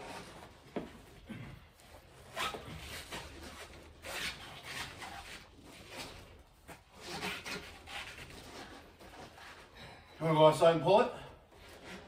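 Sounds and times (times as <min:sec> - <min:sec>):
pipe scraping and rubbing: 0:01.9 - 0:10.0, 0:11.5 - 0:12.0.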